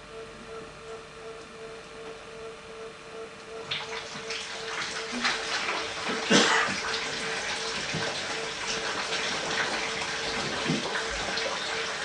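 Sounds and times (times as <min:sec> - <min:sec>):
steady hum: 0:00.0 - 0:12.0
rushing noise like running water: 0:03.7 - 0:12.0.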